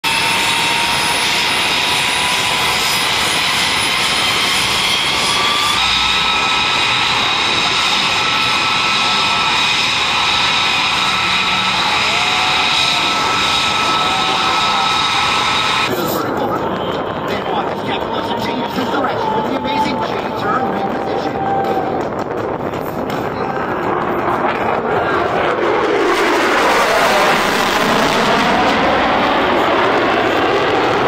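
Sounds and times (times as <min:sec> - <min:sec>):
jet engines running with whine: 0:00.0 - 0:31.0.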